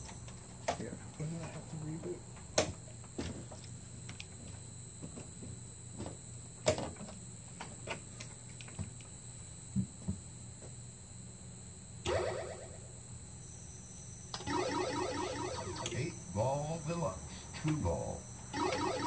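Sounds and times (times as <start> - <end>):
high whine: 12.1 - 13.2, 14.4 - 19.0
low hum: 12.1 - 13.2, 14.4 - 19.0.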